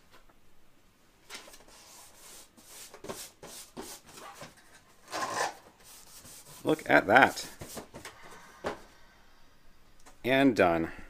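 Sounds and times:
hands rubbing paper label: 0:05.2 - 0:08.2.

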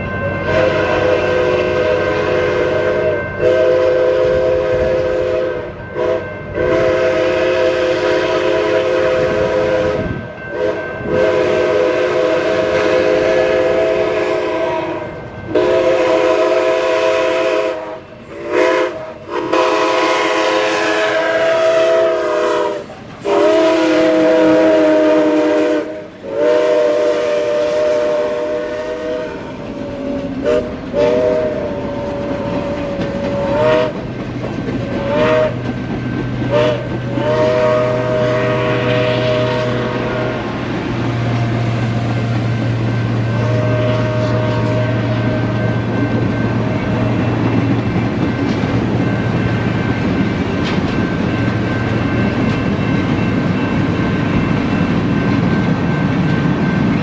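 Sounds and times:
chime steam whistle blasts: 0:00.0 - 0:34.0, 0:34.9 - 0:35.6, 0:36.4 - 0:40.6, 0:41.6 - 0:47.4
train wheels rumbling past: 0:00.0 - 0:57.0.

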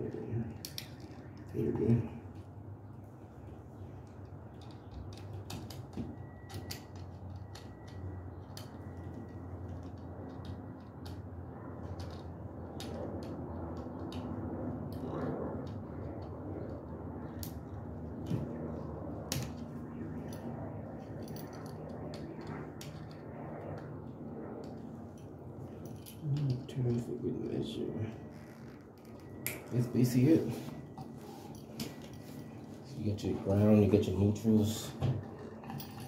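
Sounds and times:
steady low hum: 0:00.0 - 0:36.0.

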